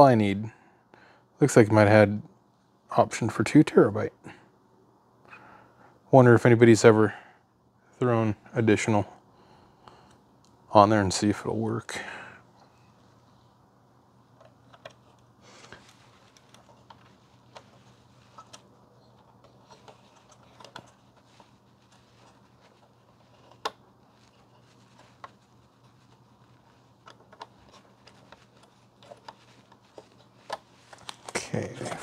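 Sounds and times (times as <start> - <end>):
hands handling plastic packaging: 14.4 - 32.0.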